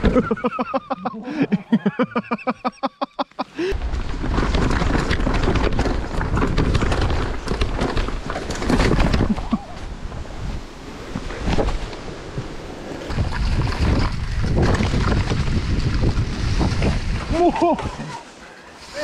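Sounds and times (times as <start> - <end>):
bike tyres rumbling on rocks: 3.6 - 19.0
bike clattering over stones: 3.8 - 9.6, 13.0 - 18.1
wind on microphone: 3.8 - 18.2.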